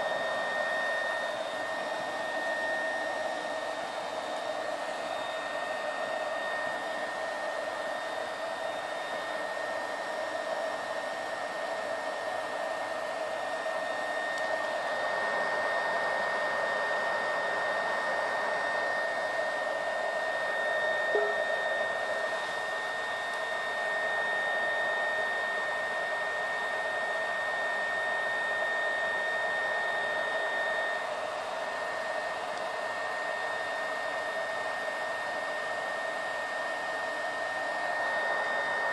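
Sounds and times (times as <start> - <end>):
stove fan whining rush of air: 0.0 - 38.9.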